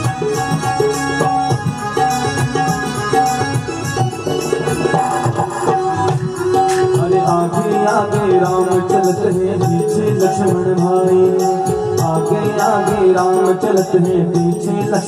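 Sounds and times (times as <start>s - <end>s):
held instrumental tones: 0.0s - 15.0s
rattling percussion: 0.0s - 15.0s
devotional song over loudspeaker: 5.6s - 15.0s
person singing: 6.4s - 15.0s.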